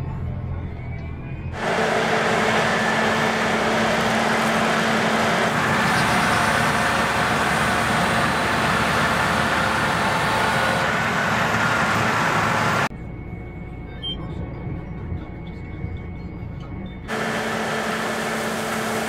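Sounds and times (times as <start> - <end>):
harvest machinery engine rush: 1.5 - 12.9, 17.1 - 19.0.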